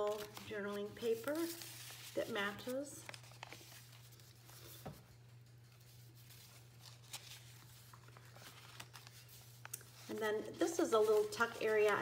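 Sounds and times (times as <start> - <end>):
paper pages being leafed through: 0.0 - 12.0.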